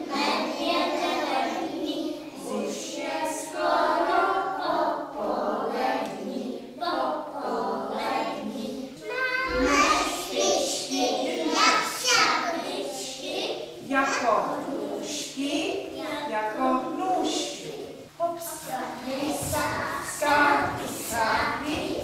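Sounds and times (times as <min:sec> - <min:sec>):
children singing in chorus: 0:00.0 - 0:13.6, 0:18.6 - 0:22.0.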